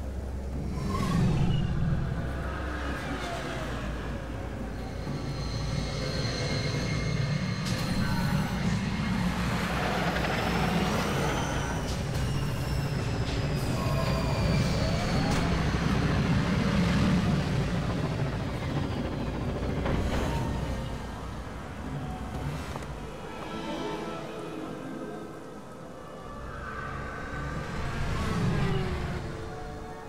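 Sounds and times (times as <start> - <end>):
hovering vehicle engine whines: 0.0 - 23.5, 25.0 - 30.0
low traffic rumble: 0.0 - 23.5.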